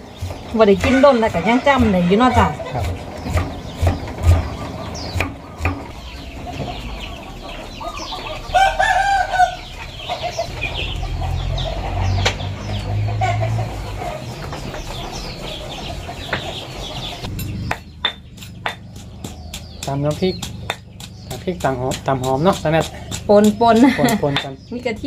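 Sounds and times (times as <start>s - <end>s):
chickens clucking: 0.0s - 25.0s
small birds chirping: 0.0s - 25.0s
rooster crowing: 0.8s - 2.8s, 7.5s - 12.1s.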